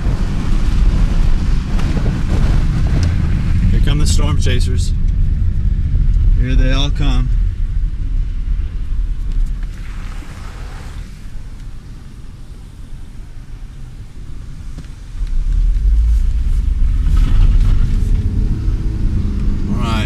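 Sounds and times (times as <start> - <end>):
wind and road noise in car: 0.0 - 20.0.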